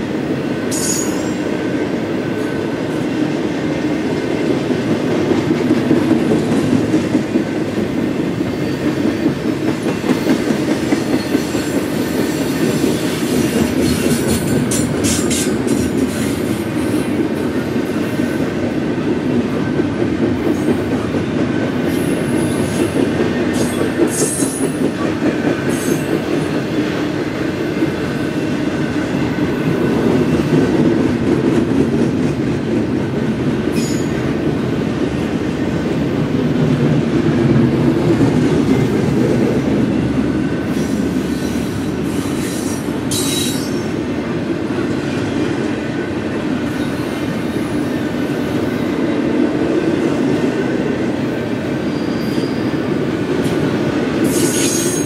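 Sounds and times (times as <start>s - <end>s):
train wheels rumbling on rail: 0.0s - 55.0s.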